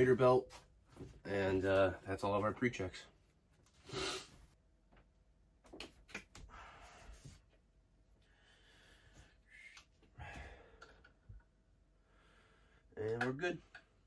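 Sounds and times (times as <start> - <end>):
breathy puff: 3.8 - 4.4.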